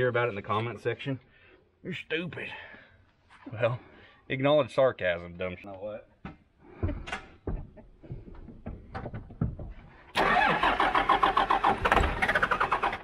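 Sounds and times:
diesel engine cranking: 10.1s - 13.0s.

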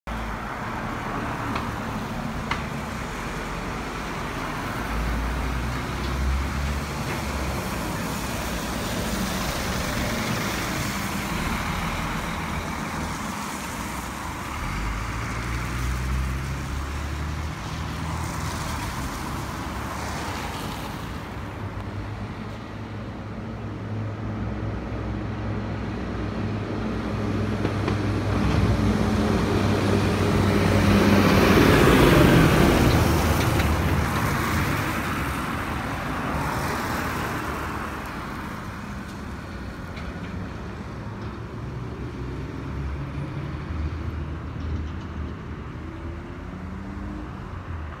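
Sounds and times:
tractor diesel engine: 0.1s - 16.8s
cars passing on wet road: 0.1s - 48.0s.

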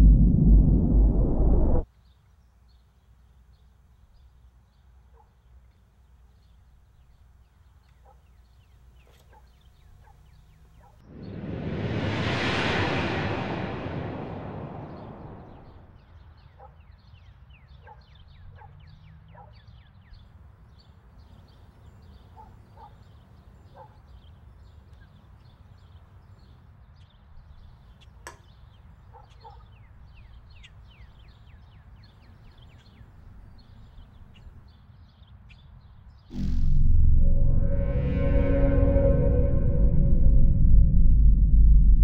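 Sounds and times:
low steady rumble: 0.0s - 1.8s, 36.4s - 42.0s
small birds chirping: 16.0s - 36.6s
music with gong-like tone: 37.0s - 41.3s.

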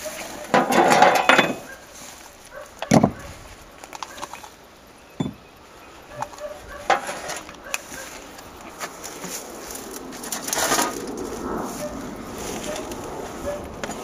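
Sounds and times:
objects knocking and clinking: 0.5s - 1.7s, 5.2s - 5.5s
loud rustling: 6.4s - 14.0s.

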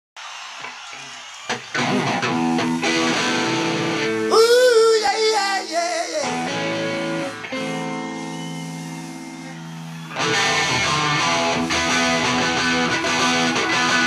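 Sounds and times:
electric guitar chords ringing: 1.8s - 4.3s, 6.2s - 14.0s
high wavering wailing vocal: 4.3s - 9.7s.

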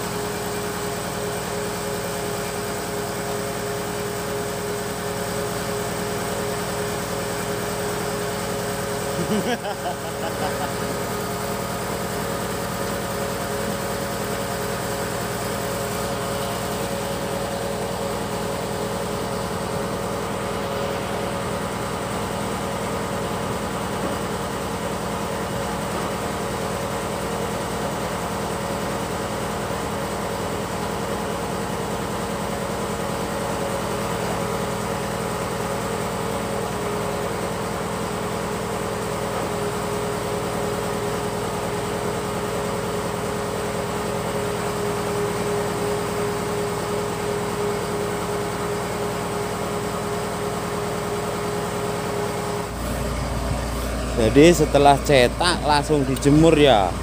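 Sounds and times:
machine humming with whine: 0.0s - 26.7s, 44.6s - 57.0s.

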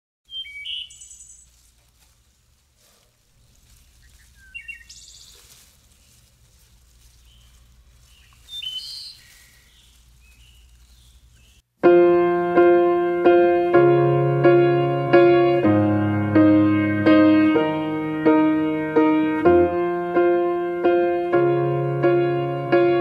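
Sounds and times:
songbirds chirping: 0.3s - 11.7s
faint low rumble: 1.4s - 8.5s.

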